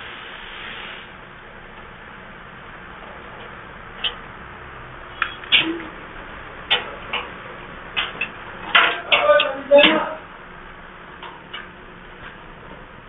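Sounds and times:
steady hiss: 0.0 - 8.9.

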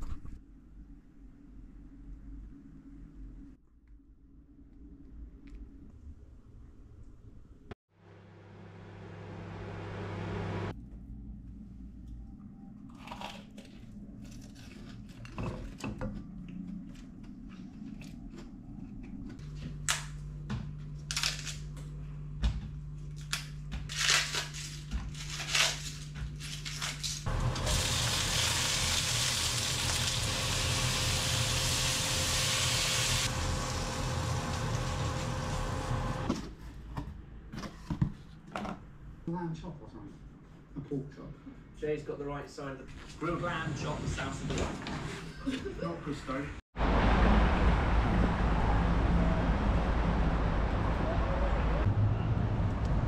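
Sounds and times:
cabbage leaves tearing: 13.0 - 15.3, 21.1 - 21.7, 23.2 - 27.9
oil sizzling in a wok: 27.3 - 36.3.

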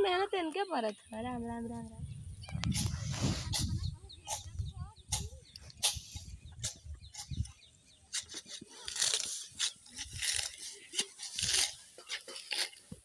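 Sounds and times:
sickle cutting grass: 2.7 - 13.0.

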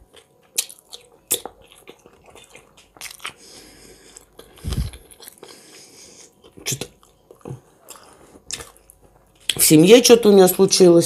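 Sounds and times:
crunchy chewing: 0.0 - 9.6.

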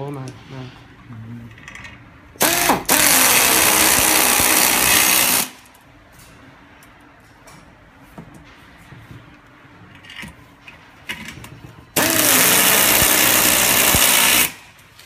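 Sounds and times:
power screwdriver driving screw: 2.4 - 5.6, 12.0 - 14.6.

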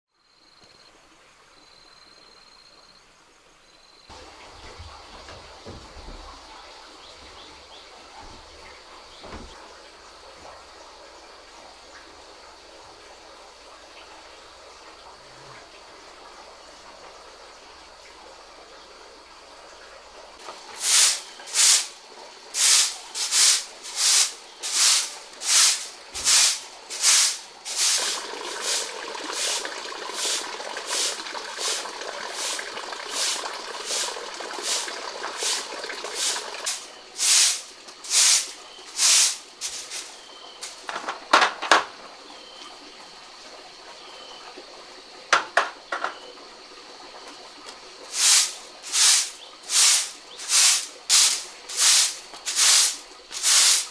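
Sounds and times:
broom sweeping concrete floor: 20.4 - 40.9, 48.1 - 53.9
running water pouring: 20.4 - 41.3, 46.9 - 53.9.

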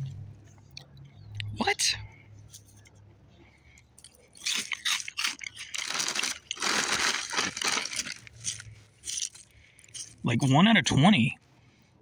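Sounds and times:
plastic bag crinkling: 4.1 - 10.2
cereal pieces pouring onto cloth: 4.6 - 9.4.

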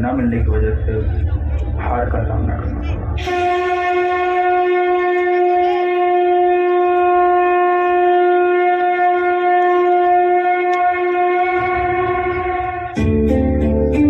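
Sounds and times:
long horn-like wind instrument note: 3.1 - 13.2.

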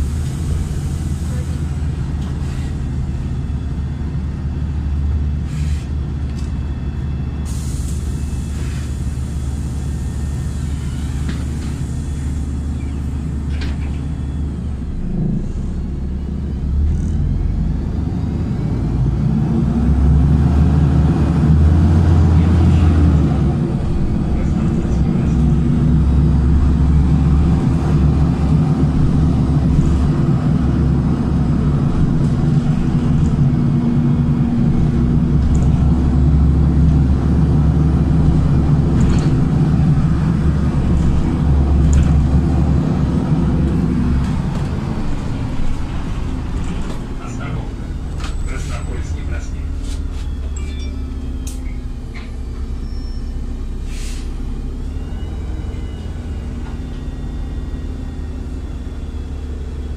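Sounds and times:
bus engine drone: 0.0 - 59.9
air hiss: 53.8 - 54.4.

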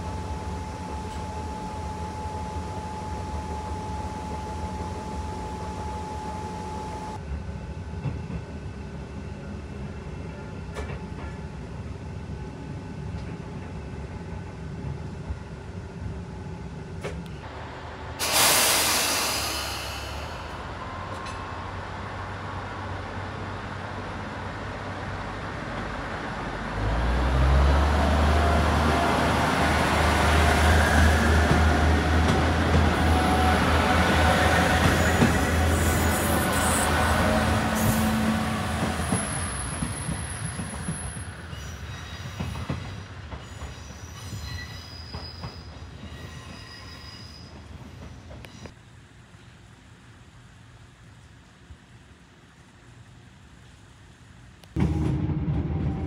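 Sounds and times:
diesel railcar engine running: 13.6 - 41.5
air hiss: 18.2 - 20.7.

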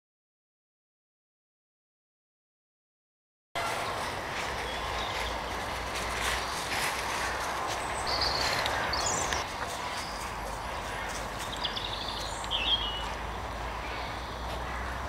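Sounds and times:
paws crunching dry leaves: 3.6 - 15.0
bird chirps: 7.8 - 14.6.

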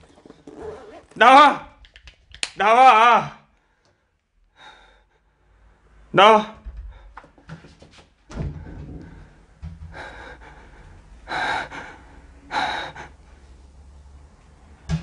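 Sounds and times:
low bumps: 6.6 - 11.9.

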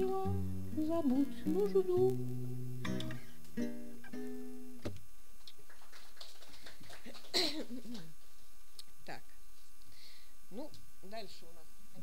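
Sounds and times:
classical guitar chords: 0.0 - 5.0.

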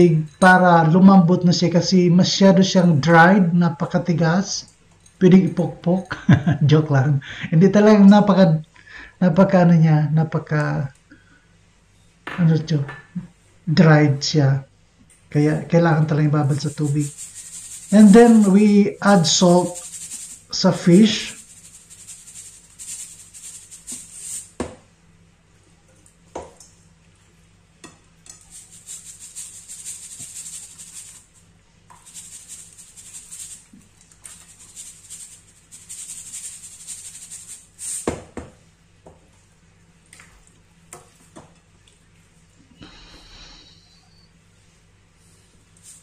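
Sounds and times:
salt shaker rattling: 16.0 - 24.7, 28.3 - 38.2, 45.7 - 46.0.

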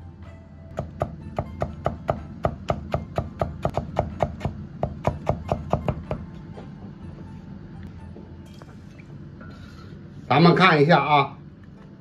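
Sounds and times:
cleaver chopping on wooden board: 0.8 - 6.2.

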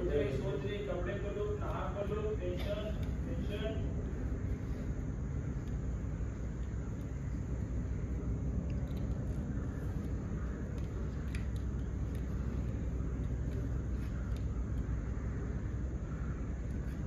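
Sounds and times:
low background rumble: 0.0 - 17.0
faint clicks: 8.5 - 15.0.

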